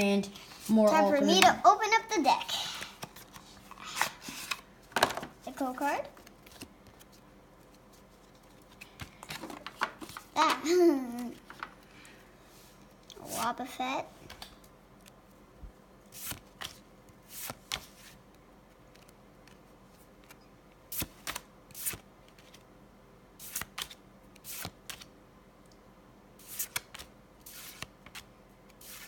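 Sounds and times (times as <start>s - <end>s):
cards sliding swishes: 2.7s - 4.7s, 16.1s - 18.2s, 20.2s - 22.6s, 23.4s - 25.1s, 26.4s - 29.0s.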